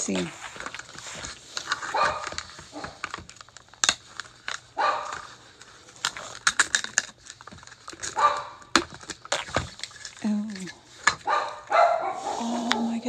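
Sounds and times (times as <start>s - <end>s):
plastic wrapper crinkling: 0.0s - 11.8s
dog barking: 1.9s - 3.0s, 4.8s - 5.2s, 8.2s - 8.6s, 11.2s - 13.0s.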